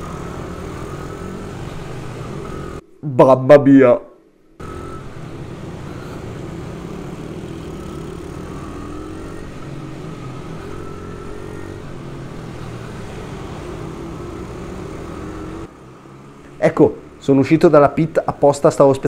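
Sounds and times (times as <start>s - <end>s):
motorbike engine running hard: 4.6s - 15.7s.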